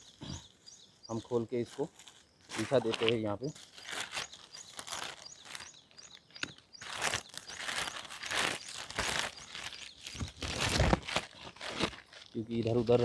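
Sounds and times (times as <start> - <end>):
plastic sheet rustling: 1.2 - 5.7, 6.8 - 13.0.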